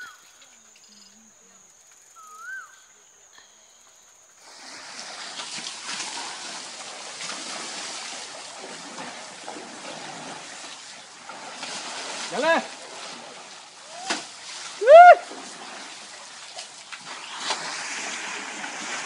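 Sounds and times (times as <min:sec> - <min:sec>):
water splashing and trickling: 0:04.4 - 0:19.0.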